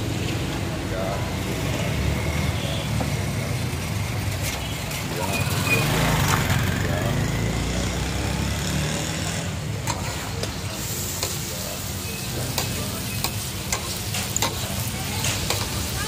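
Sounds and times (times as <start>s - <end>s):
meat sizzling in oil: 9.0s - 16.0s
metal spatula scraping griddle: 9.8s - 16.0s.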